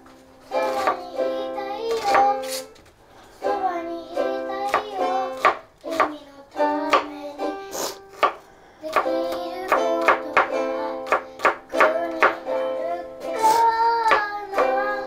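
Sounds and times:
knife tapping cutting board: 5.4 - 6.1, 8.2 - 12.4, 14.1 - 14.3
plucked string music: 11.7 - 15.0.

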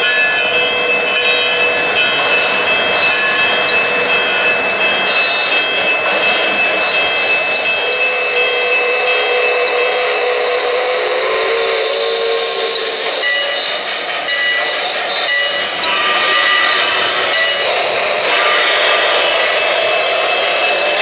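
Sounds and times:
model train wheels rolling: 0.0 - 21.0
thin high tones: 12.6 - 21.0.

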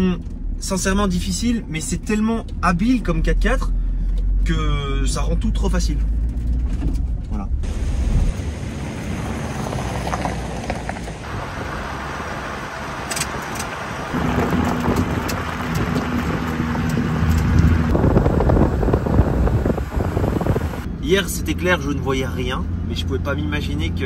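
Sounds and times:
diesel engine drone: 0.0 - 24.0
tyres on gravel: 7.8 - 17.9
wind on microphone: 14.1 - 20.9.

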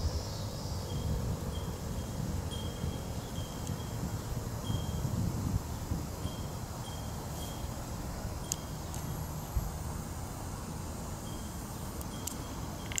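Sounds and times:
wind rumble on microphone: 0.0 - 13.0
high chirps: 6.1 - 13.0
sharp click: 12.0 - 13.0.

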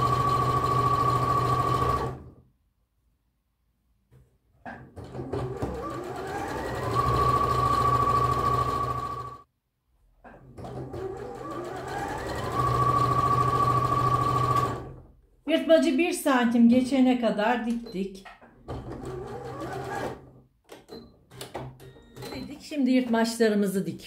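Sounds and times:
sewing machine stitching: 0.0 - 2.4, 4.7 - 9.4, 10.3 - 15.0, 18.6 - 22.5.

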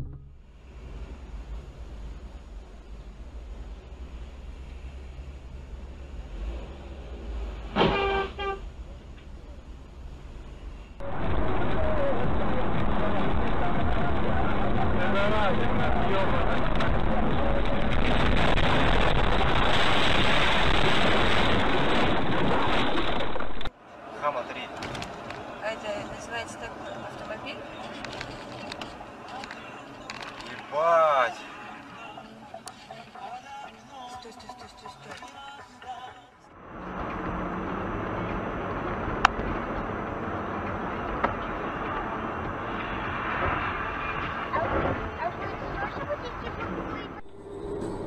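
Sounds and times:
car road and engine noise: 0.0 - 48.0
loud rushing noise on microphone: 11.0 - 23.7.

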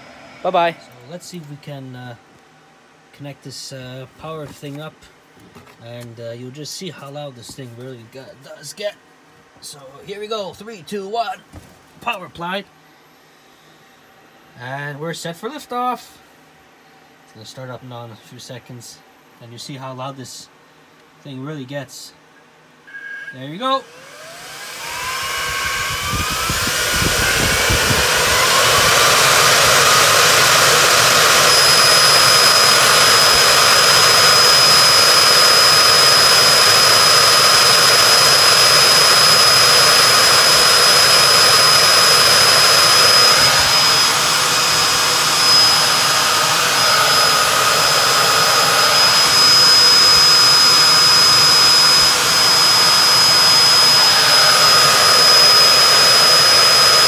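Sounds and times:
server fans whining and rushing: 0.0 - 5.7, 22.9 - 57.0.

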